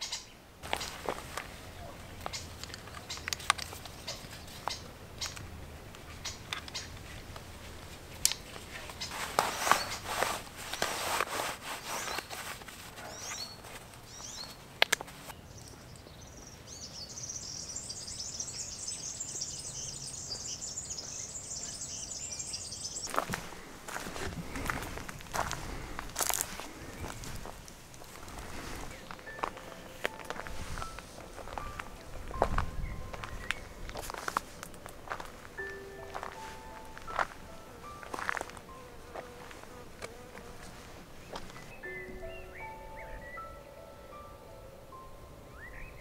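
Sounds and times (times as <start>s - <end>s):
high-pitched bird chirping: 17.0s - 23.2s.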